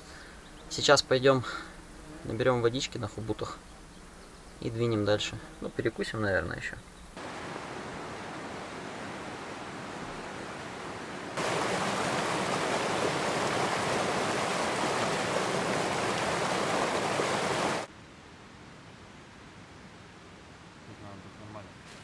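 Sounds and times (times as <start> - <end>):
river water rushing: 7.2 - 17.9.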